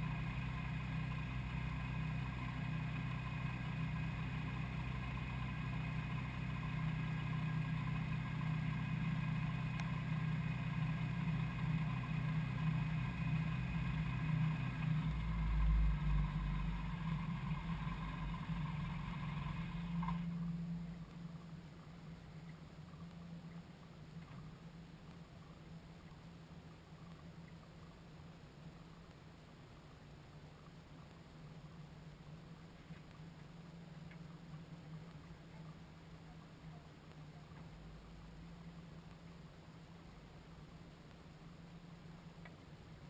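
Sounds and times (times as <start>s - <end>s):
aircraft engine and propeller: 0.0s - 20.4s
deep rumble: 0.0s - 42.1s.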